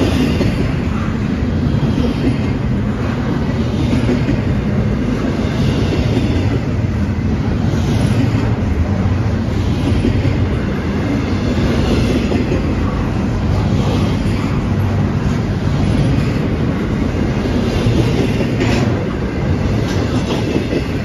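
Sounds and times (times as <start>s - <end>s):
steel wheels rumbling on rail: 0.0s - 21.0s.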